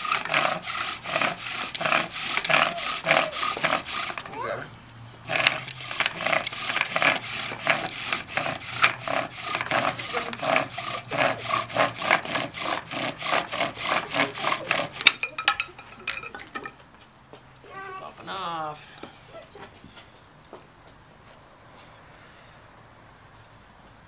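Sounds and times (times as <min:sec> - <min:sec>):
wooden spindle rasping and squeaking: 0:00.0 - 0:04.5, 0:05.2 - 0:16.8.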